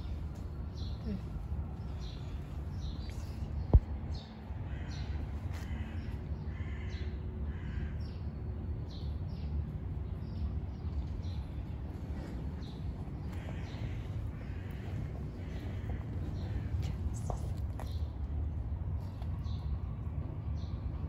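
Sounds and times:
birds calling: 0:00.0 - 0:08.2, 0:10.2 - 0:18.1
steady low rumble: 0:00.0 - 0:21.0.

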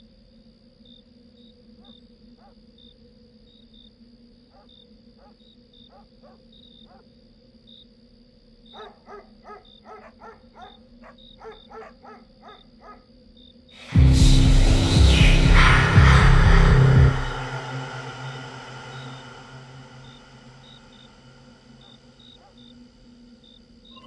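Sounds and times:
steady low hum: 0:07.3 - 0:24.0
dogs barking faintly: 0:08.7 - 0:13.1.

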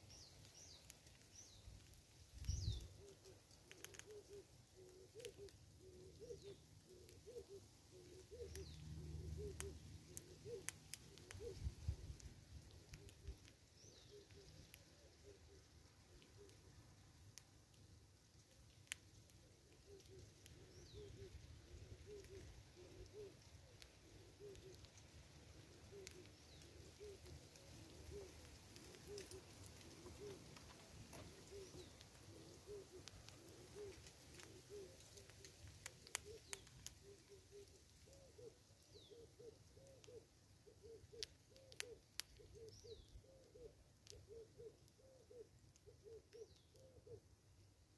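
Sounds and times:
faint dove cooing: 0:02.4 - 0:16.8, 0:18.8 - 0:47.3.

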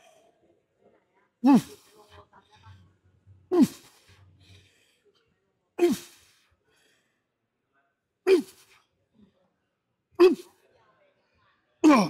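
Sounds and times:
man grunting with effort: 0:01.4 - 0:01.9, 0:03.5 - 0:04.0, 0:05.8 - 0:06.2, 0:08.3 - 0:08.7, 0:10.2 - 0:10.5.

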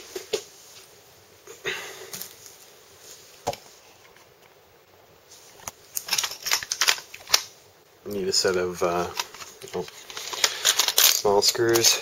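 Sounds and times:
sharp handling clicks and knocks: 0:05.6 - 0:07.5, 0:08.4 - 0:12.0
screwdriver case clicks and rattles: 0:06.0 - 0:07.5.

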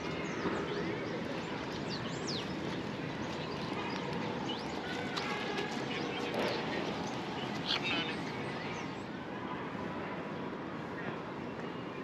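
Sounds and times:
birds chirping: 0:05.9 - 0:09.0.

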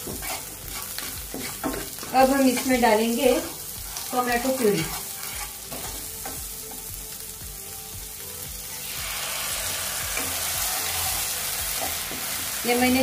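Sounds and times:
wooden spatula stirring: 0:00.0 - 0:06.0
vegetables sizzling in a pan: 0:00.0 - 0:13.0.

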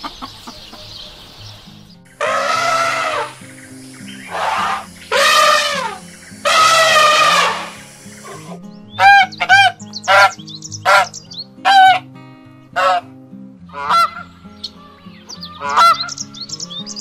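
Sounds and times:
geese honking: 0:02.2 - 0:12.1, 0:12.8 - 0:13.1, 0:13.7 - 0:16.3.

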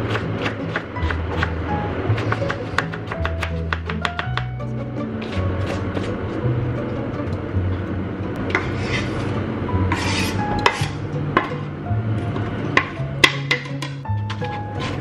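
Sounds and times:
background music with bass: 0:00.0 - 0:15.0
knife scraping chopping board: 0:05.2 - 0:06.2, 0:08.5 - 0:09.3, 0:09.9 - 0:11.5, 0:14.3 - 0:15.0.

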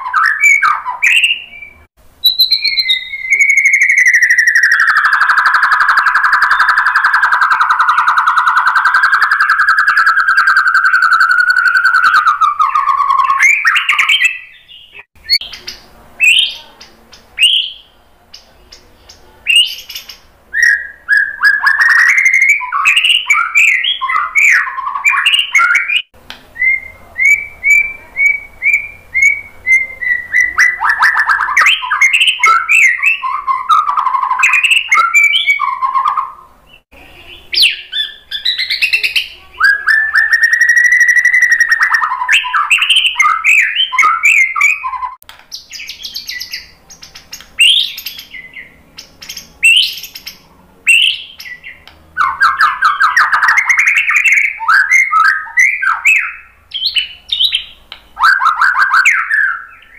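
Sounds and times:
bird singing whistles and trills: 0:00.0 - 0:59.9.

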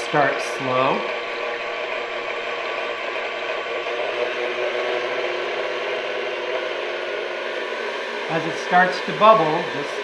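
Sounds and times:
stand mixer motor whirring: 0:00.0 - 0:10.0.

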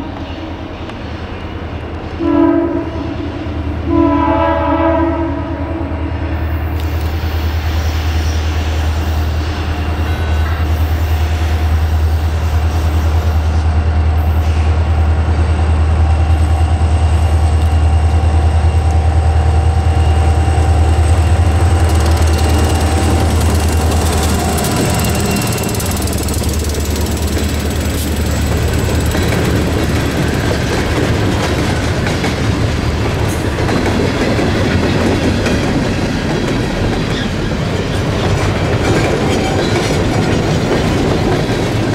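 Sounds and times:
diesel locomotive engines rumbling: 0:00.0 - 0:41.9
train wheels clattering on rails: 0:06.8 - 0:41.9.

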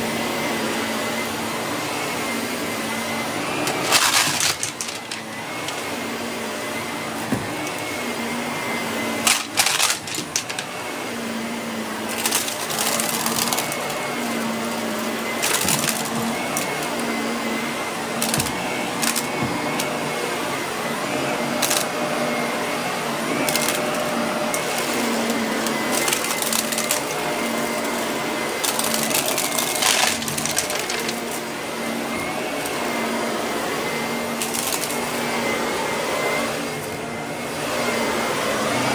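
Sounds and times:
vacuum cleaner running on carpet: 0:00.0 - 0:38.9
debris crackling and rattling: 0:03.8 - 0:05.2.

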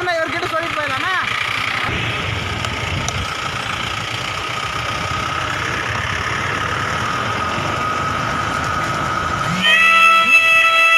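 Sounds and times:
vehicle engine idling: 0:00.0 - 0:10.9
high-pitched tone: 0:09.4 - 0:10.9.

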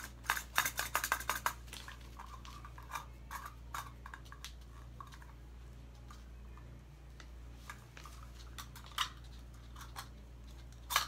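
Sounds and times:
plastic tools clicking and clattering: 0:00.0 - 0:05.3, 0:07.7 - 0:11.0.

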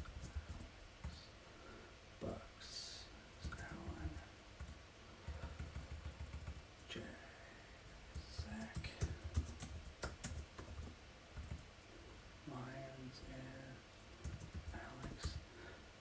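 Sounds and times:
keyboard typing: 0:00.0 - 0:01.2, 0:03.4 - 0:06.9, 0:07.9 - 0:11.7, 0:14.1 - 0:15.4.

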